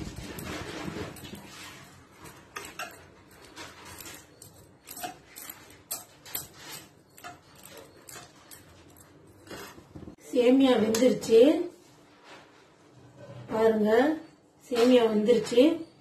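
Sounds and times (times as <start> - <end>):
metal ladle scraping a pan: 0.0 - 10.0.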